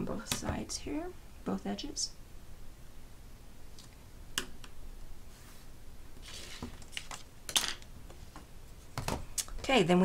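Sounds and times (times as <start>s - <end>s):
ruler scraping rustle: 5.3s - 7.2s.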